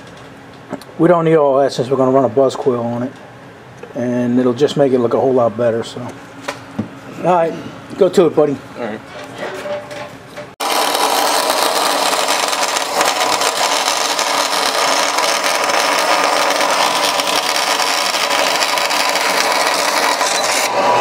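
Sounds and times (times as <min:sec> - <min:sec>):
band saw cutting metal: 0:10.6 - 0:21.0.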